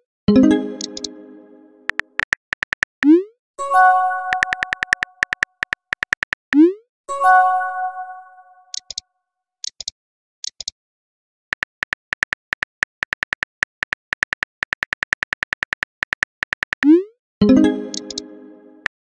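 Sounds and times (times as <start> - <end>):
phone keyboard clicks: 0.8 - 1.1, 1.9 - 3.0, 4.3 - 6.4, 8.7 - 9.0, 9.6 - 10.8, 11.6 - 16.9, 17.9 - 18.3.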